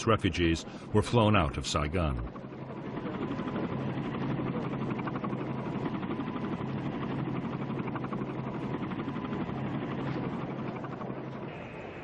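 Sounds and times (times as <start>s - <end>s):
helicopter rotor chopping: 0.0s - 12.0s.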